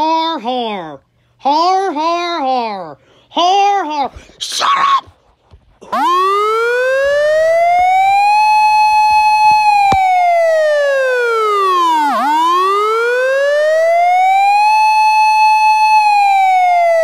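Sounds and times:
electronic siren wailing: 6.0s - 17.0s.

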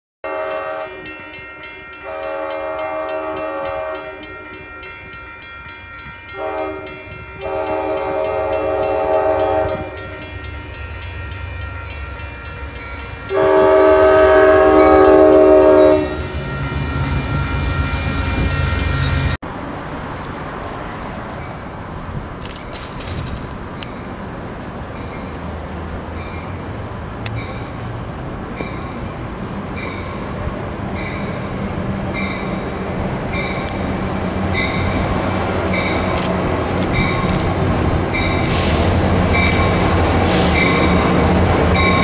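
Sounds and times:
locomotive air horn blasts: 0.2s - 1.3s, 2.0s - 4.7s, 6.3s - 10.3s, 13.3s - 16.8s
low train rumble: 0.2s - 42.0s.

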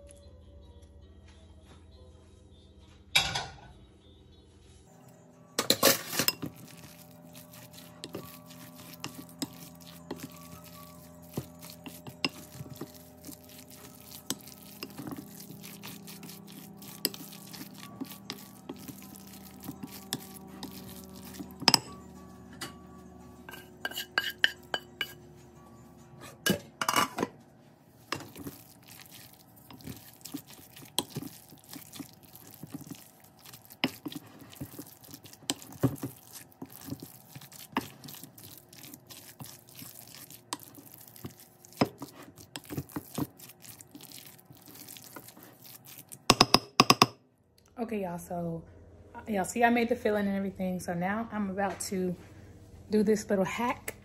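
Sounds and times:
utensil stirring thick filling: 5.6s - 22.2s, 23.4s - 25.2s, 28.0s - 47.1s
utensil clinking on glass bowl: 5.6s - 22.8s, 23.4s - 25.2s.

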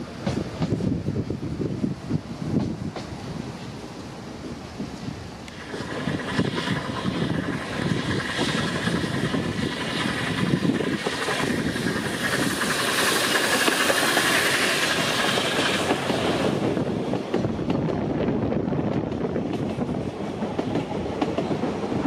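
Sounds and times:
steam hissing: 0.0s - 17.2s
steam locomotive passing: 0.0s - 22.0s.

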